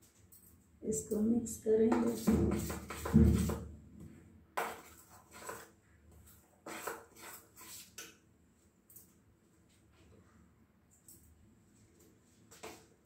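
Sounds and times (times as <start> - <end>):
metal spoon stirring batter in bowl: 0.9 - 3.6, 4.6 - 8.2.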